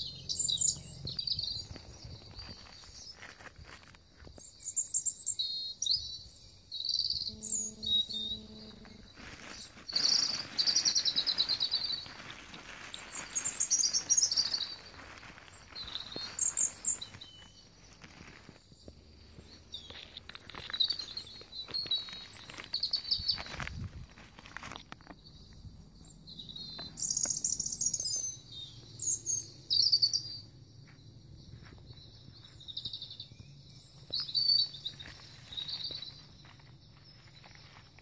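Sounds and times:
songbirds chirping and trilling: 0.0 - 38.0
plastic and paper rustling: 1.6 - 4.4, 8.8 - 25.2.

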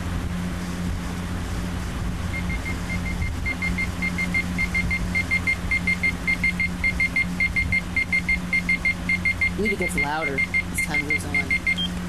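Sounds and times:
alarm clock beeping: 2.4 - 11.9.

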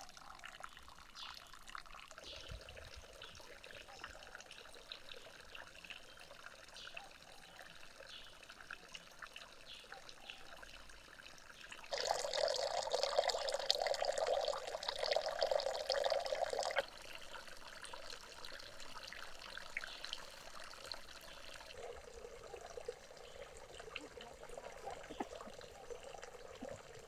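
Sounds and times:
water trickling into pond: 0.0 - 27.0
loud rush of pouring water: 11.9 - 16.8.

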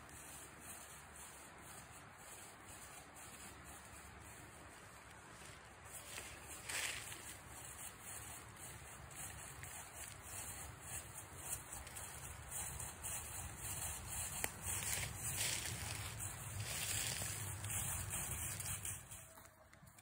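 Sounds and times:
rustling on phone microphone: 0.0 - 20.0.

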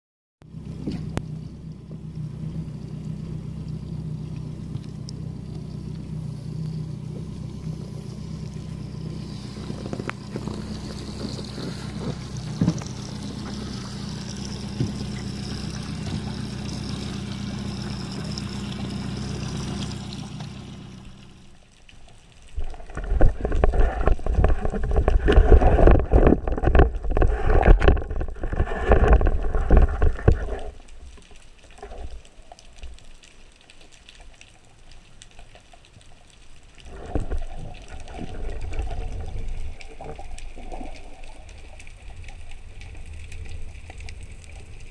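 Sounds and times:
motorboat engine drone: 0.4 - 21.8
water splashing and sloshing: 0.4 - 44.9.

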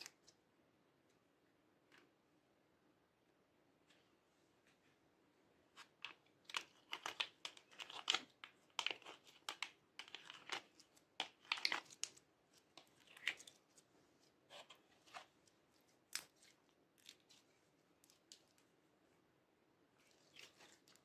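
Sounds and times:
sticky slime crackles and pops: 6.4 - 12.2.

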